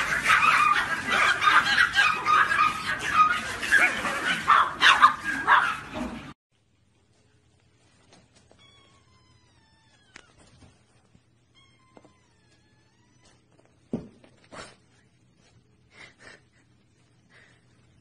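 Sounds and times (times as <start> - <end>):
puppies yipping and barking: 0.0 - 6.4
faint kitten meow: 8.6 - 10.5.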